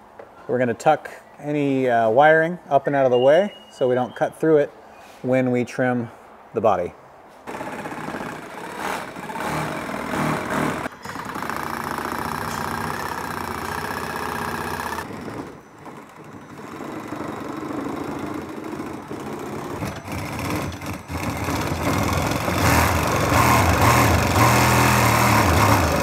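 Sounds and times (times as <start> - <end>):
power saw cutting plastic: 7.5 - 26.0.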